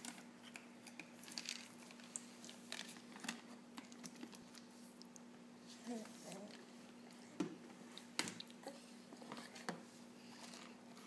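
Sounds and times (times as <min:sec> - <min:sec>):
faint steady hum: 0:00.0 - 0:11.0
baby chewing: 0:07.9 - 0:11.0.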